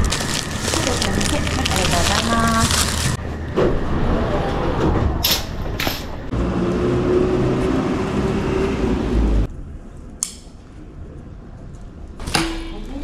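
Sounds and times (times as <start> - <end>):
machine hum with low drone: 0.0 - 13.0.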